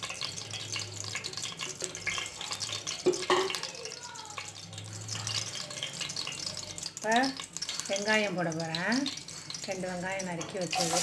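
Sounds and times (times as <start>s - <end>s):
faint oil crackles: 0.0s - 11.0s
hot oil hissing: 0.0s - 11.0s.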